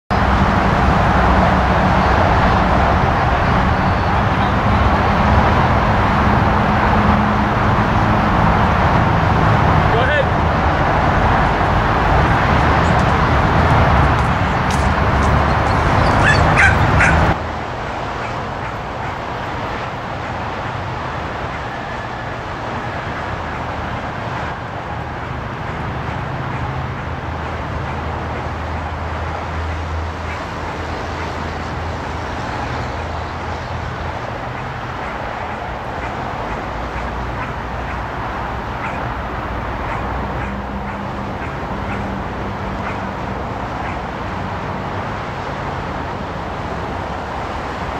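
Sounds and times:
outdoor background hum: 0:10.3 - 0:47.9
dogs barking: 0:12.3 - 0:17.4, 0:18.2 - 0:20.4, 0:25.6 - 0:31.4, 0:34.4 - 0:44.1.

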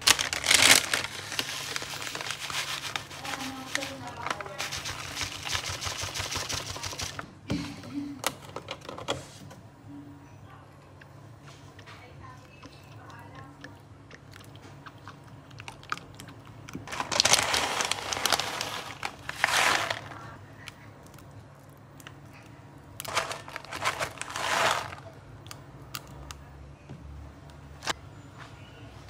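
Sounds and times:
plastic food packet crinkling: 0:00.0 - 0:07.2, 0:15.1 - 0:22.2, 0:23.0 - 0:26.1.

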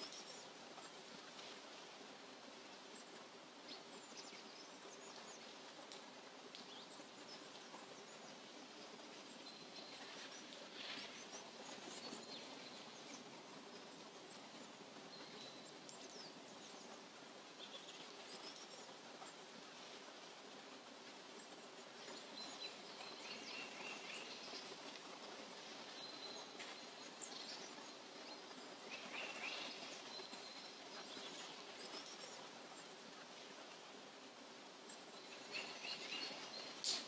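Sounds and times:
soft steady hiss: 0:00.0 - 0:37.0.

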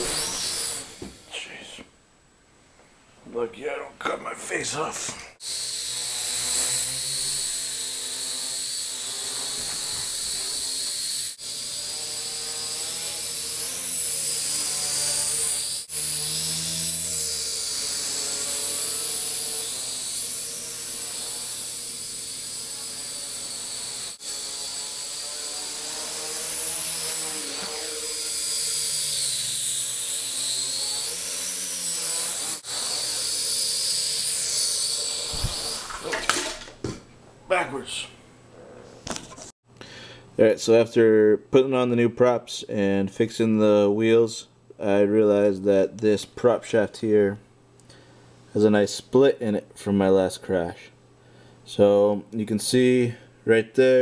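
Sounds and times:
quadcopter motors whining: 0:00.0 - 0:01.3, 0:05.4 - 0:36.2.

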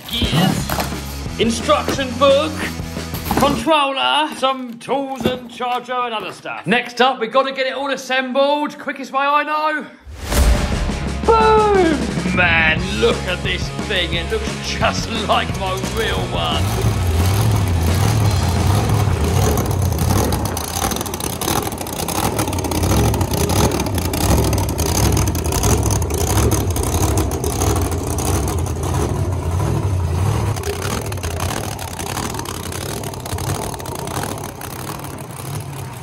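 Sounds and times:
engine running and revving: 0:00.6 - 0:03.6, 0:12.3 - 0:36.0.

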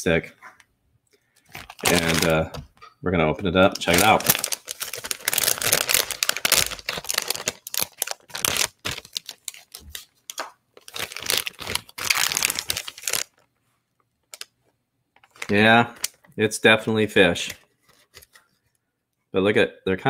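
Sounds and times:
plastic bag crackling: 0:01.5 - 0:02.6, 0:03.6 - 0:13.5, 0:15.2 - 0:16.2.

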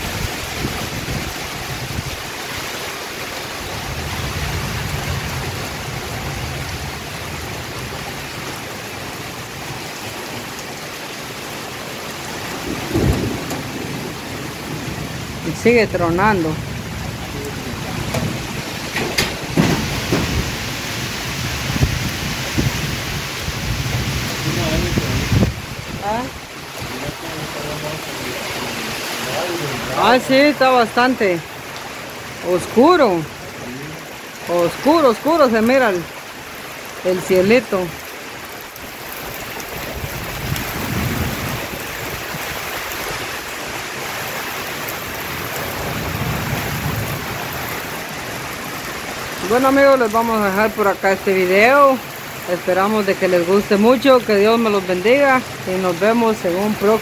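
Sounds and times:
heavy rain pouring: 0:00.0 - 0:57.0
strong wind through trees: 0:00.0 - 0:57.0
low rumble of thunder: 0:12.5 - 0:27.6, 0:39.8 - 0:42.5, 0:45.6 - 0:47.7.

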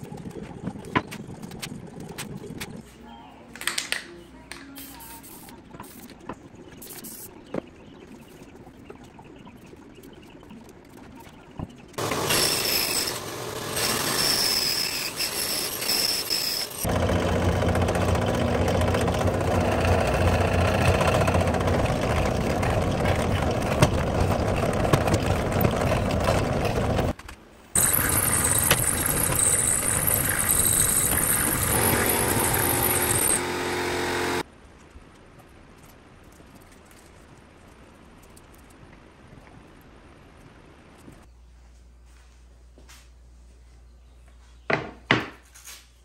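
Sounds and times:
bandsaw cutting wood: 0:12.0 - 0:27.1, 0:27.8 - 0:34.4
drill press boring holes: 0:12.0 - 0:27.1, 0:27.8 - 0:34.4.

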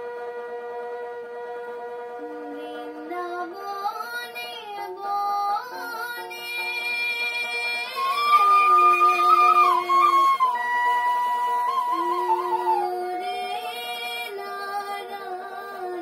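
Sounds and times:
woman singing folk song: 0:02.5 - 0:10.1, 0:12.0 - 0:16.0.

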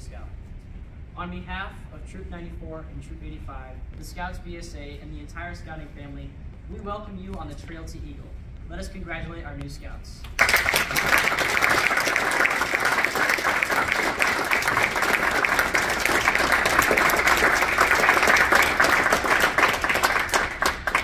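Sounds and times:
audience applause: 0:10.4 - 0:21.0.

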